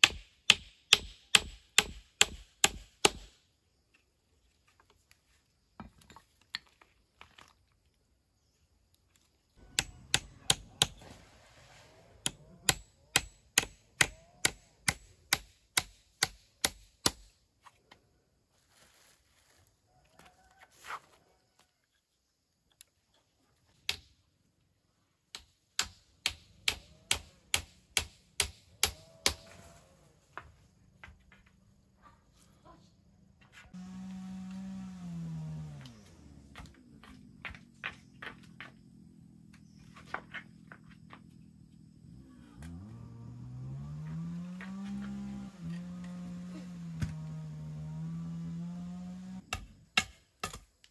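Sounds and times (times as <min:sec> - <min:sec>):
hammer hitting nails into wood: 0:00.0 - 0:03.4, 0:09.7 - 0:11.0, 0:12.2 - 0:17.3, 0:25.3 - 0:29.5.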